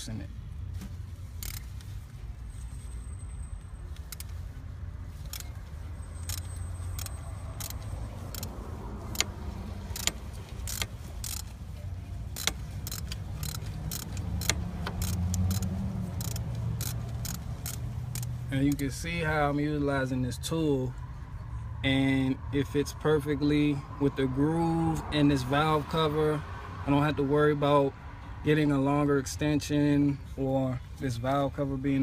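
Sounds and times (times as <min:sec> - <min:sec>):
ratchet clicking metallic: 0:01.4 - 0:01.7, 0:04.0 - 0:04.4, 0:05.2 - 0:05.5, 0:06.2 - 0:11.6, 0:12.3 - 0:18.8.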